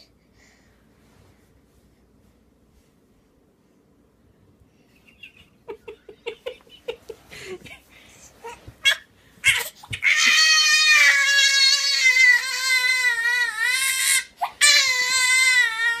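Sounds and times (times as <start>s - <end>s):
infant wailing: 8.4s - 16.0s.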